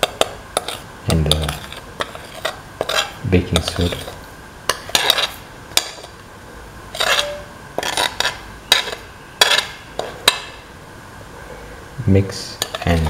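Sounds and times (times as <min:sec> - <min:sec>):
metal plate scraping jar rim: 0:06.9 - 0:10.2.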